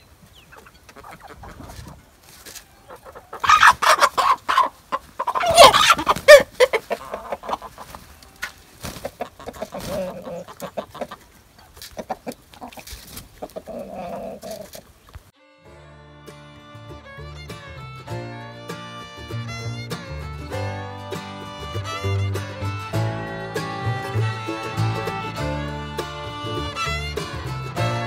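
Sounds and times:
hens and roosters clucking: 0.0 - 15.3.

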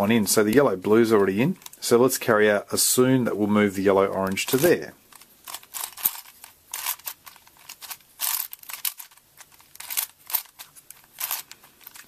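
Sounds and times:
plastic puzzle clicking: 4.1 - 12.0.

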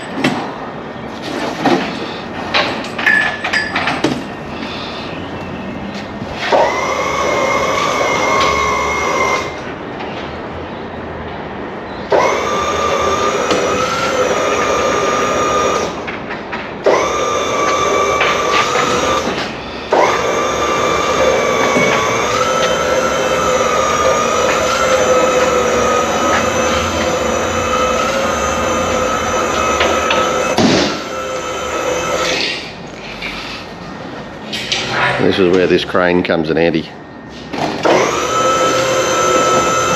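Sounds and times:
power tool motor whining: 6.5 - 9.6, 12.1 - 16.0, 16.9 - 32.5, 37.8 - 39.9.

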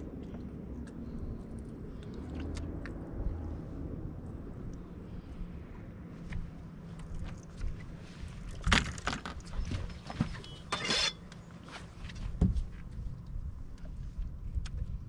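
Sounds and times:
fishing gear clattering on deck: 8.6 - 11.3.

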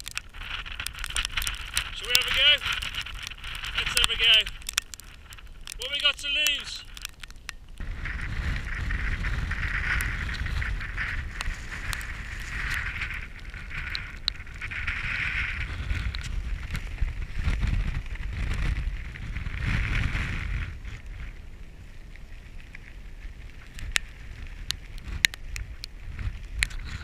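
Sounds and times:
sharp clicks and ticks: 0.0 - 7.9, 23.7 - 25.9
wind buffeting microphone: 0.0 - 27.0.

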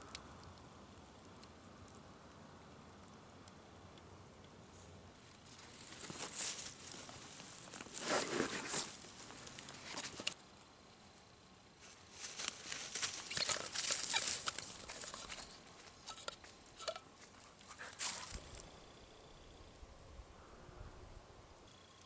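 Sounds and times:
rustling of grass and blanket: 4.6 - 18.8
dog steps crunching through grass: 5.5 - 10.3, 11.9 - 16.0.

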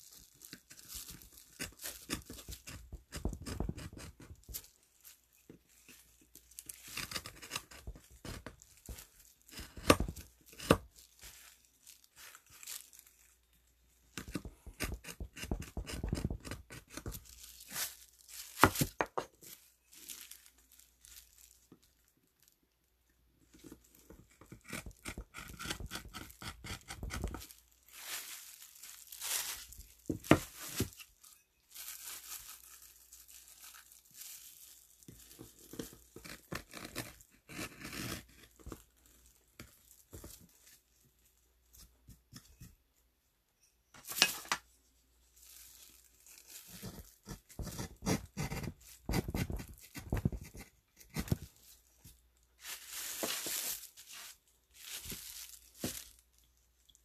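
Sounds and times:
carving tool scraping wood: 1.6 - 4.5, 6.7 - 8.6, 9.5 - 10.8, 14.2 - 17.2, 23.6 - 27.4, 35.7 - 38.7, 46.7 - 51.4.

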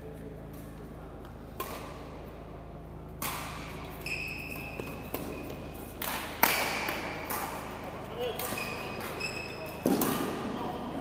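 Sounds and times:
rackets hitting shuttlecock: 0.4 - 10.8
short high squeak: 4.0 - 4.8, 8.6 - 9.8.

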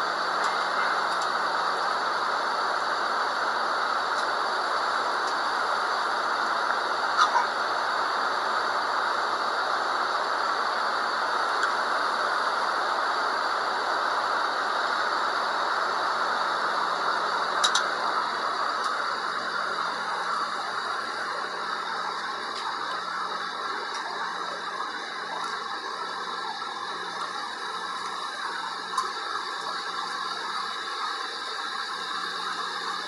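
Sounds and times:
aircraft cabin noise: 16.0 - 33.0.

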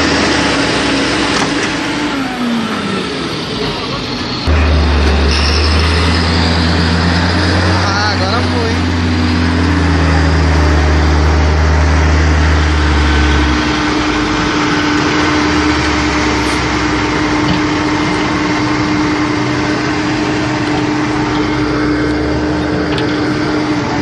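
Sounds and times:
heavy diesel engines running: 0.0 - 24.0
deep low drone: 2.0 - 24.0.

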